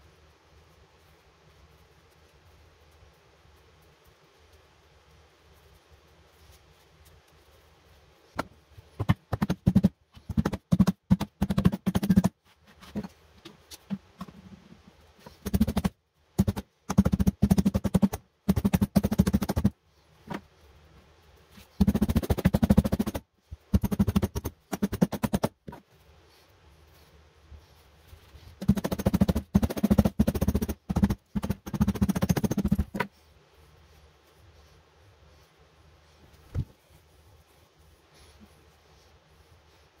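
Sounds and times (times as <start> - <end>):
hammer tapping rubber sole: 8.4 - 13.1, 15.4 - 20.4, 21.8 - 25.8, 28.6 - 33.1.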